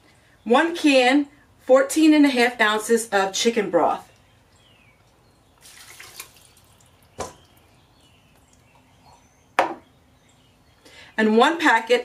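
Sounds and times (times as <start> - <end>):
liquid pouring and splashing: 5.6 - 7.0.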